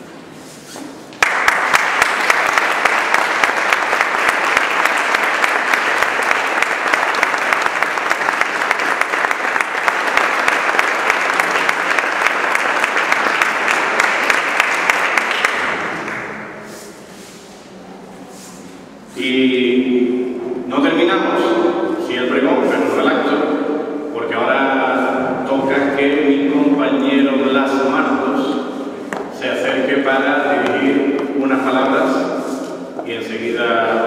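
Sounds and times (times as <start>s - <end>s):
audience applauding: 1.2s - 16.4s.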